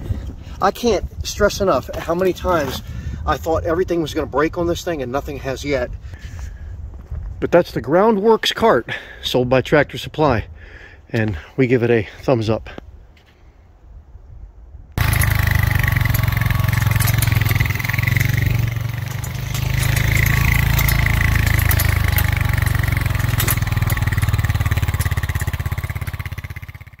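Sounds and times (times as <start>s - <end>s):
atv engine running: 15.0s - 27.0s
cart clicks and rattles: 15.0s - 27.0s.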